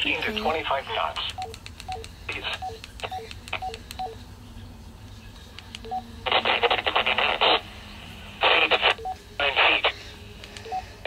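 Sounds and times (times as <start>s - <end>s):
radio speaker hiss burst: 8.4s - 10.0s.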